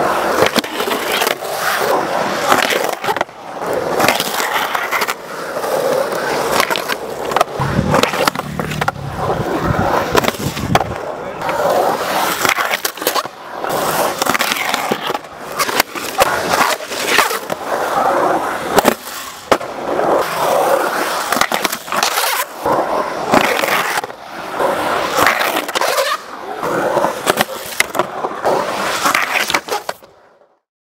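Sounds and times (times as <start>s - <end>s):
skateboard wheels rolling on concrete: 0.0s - 30.7s
skateboard knocking on concrete: 5.8s - 13.3s.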